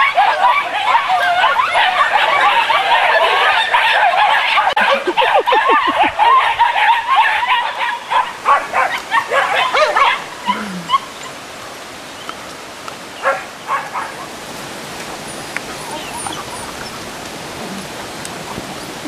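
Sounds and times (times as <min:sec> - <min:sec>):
puppies yipping: 0:00.0 - 0:11.4, 0:13.2 - 0:14.3, 0:15.2 - 0:17.3.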